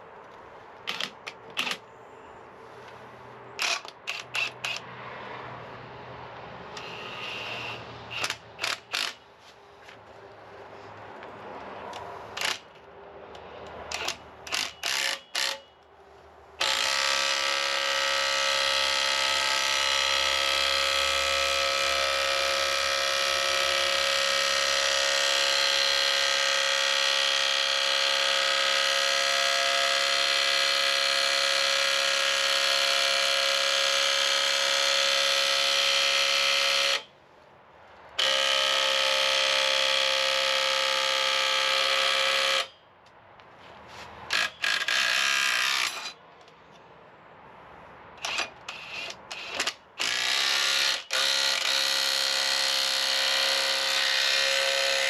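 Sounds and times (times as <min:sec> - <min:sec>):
power tool motor running: 0:06.8 - 0:09.2, 0:16.6 - 0:37.1, 0:38.2 - 0:42.7, 0:44.3 - 0:46.2, 0:48.2 - 0:55.0.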